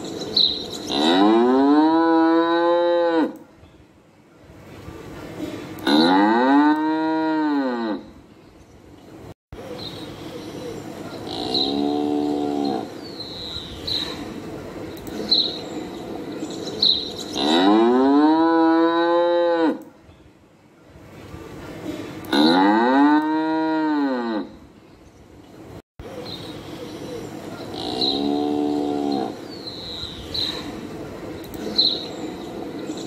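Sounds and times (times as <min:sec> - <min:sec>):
cattle mooing: 0:00.9 - 0:03.4, 0:05.9 - 0:08.1, 0:11.3 - 0:12.9, 0:17.4 - 0:19.8, 0:22.3 - 0:24.5, 0:27.7 - 0:29.4.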